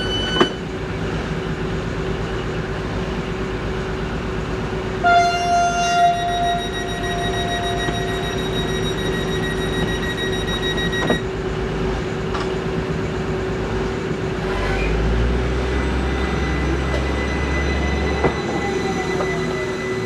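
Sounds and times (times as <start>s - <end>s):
diesel train engine drone: 0.0s - 20.0s
high steady whine: 5.0s - 11.2s.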